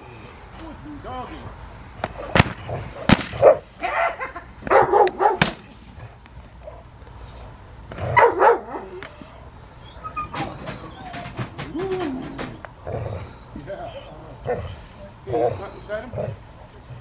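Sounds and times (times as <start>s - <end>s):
dog barking: 3.4s - 5.4s, 8.1s - 9.0s.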